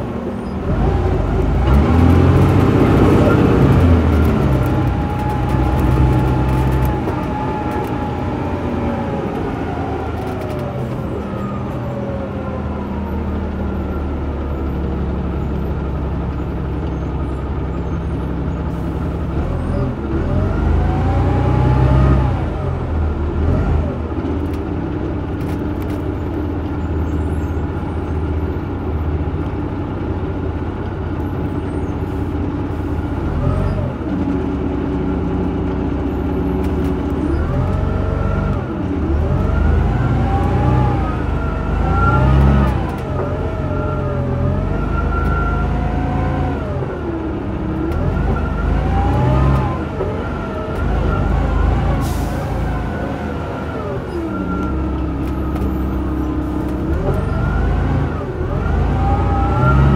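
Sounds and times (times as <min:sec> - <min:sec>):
bus diesel engine running: 0:00.0 - 0:59.9.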